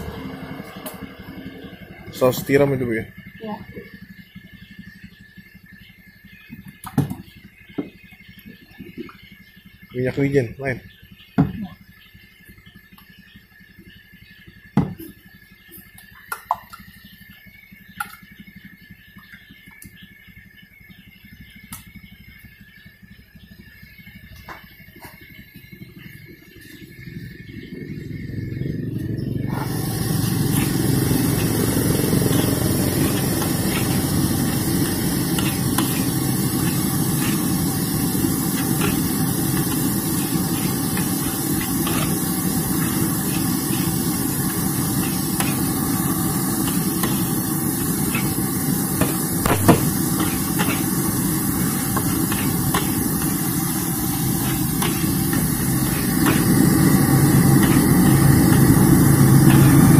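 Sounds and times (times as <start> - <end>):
low roar: 27.6 - 49.0
rice sizzling in wok: 29.4 - 59.9.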